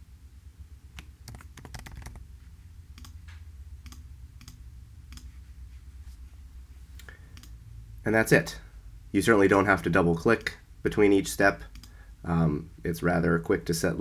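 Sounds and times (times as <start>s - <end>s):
low steady hum: 0.0s - 14.0s
keyboard typing: 1.0s - 2.2s.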